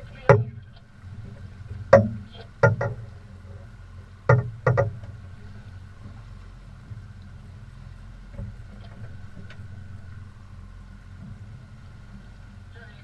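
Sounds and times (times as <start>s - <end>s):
boat motor humming: 0.0s - 13.0s
sharp thumps: 0.2s - 3.2s, 4.2s - 5.2s.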